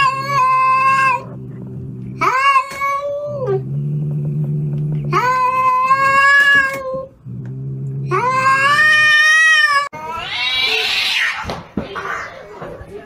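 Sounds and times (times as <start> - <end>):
cat growling low: 0.0 - 11.2
cat yowling: 8.1 - 11.5.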